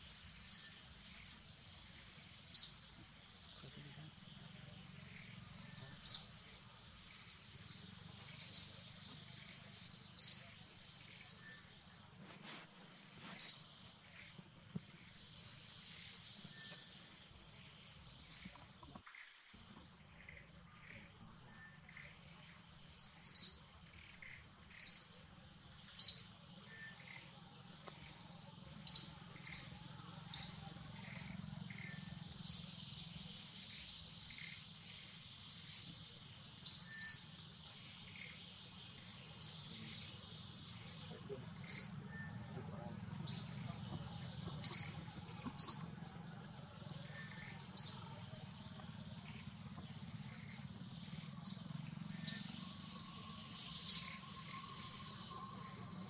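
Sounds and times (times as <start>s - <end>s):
forest birds chirping: 0.0s - 56.0s
steady high-pitched drone: 36.7s - 56.0s.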